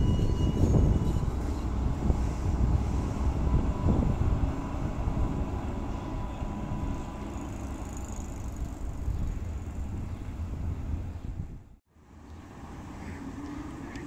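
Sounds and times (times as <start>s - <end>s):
tram rumble: 0.0s - 14.0s.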